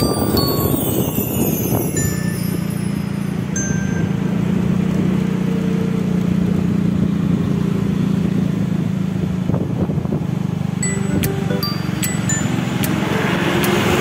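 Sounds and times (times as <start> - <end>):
road noise: 0.0 - 14.0
vehicle engine humming: 2.2 - 9.1, 10.6 - 14.0.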